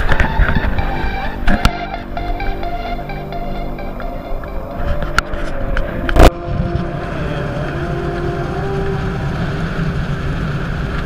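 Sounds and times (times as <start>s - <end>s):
water noise: 0.0s - 11.0s
outboard motor rumble: 4.9s - 11.0s.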